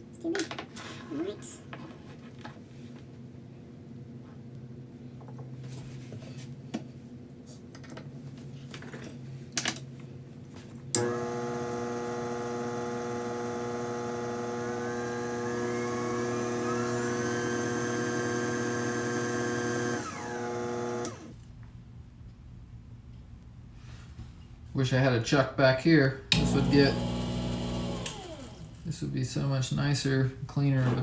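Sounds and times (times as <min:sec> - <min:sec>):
lathe motor whining: 0:11.0 - 0:21.3, 0:26.3 - 0:28.9.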